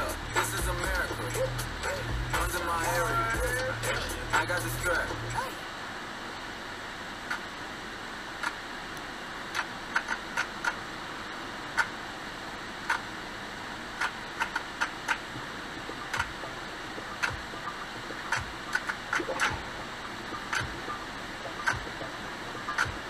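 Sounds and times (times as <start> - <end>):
sharp ticks: 7.3 - 7.5, 8.4 - 8.6, 9.5 - 10.8, 11.8 - 12.0, 12.9 - 13.1, 14.0 - 15.3, 15.9 - 19.7, 20.4 - 20.8, 21.4 - 23.0.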